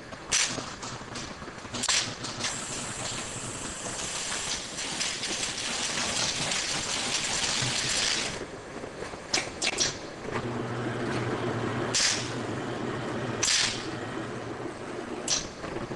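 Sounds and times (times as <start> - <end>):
plastic bottles clattering on conveyor: 4.2 - 8.4.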